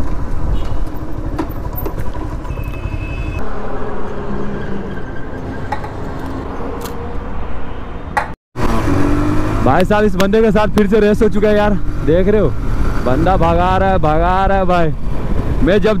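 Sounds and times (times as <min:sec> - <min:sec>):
motorcycle engine running: 0:00.0 - 0:03.7.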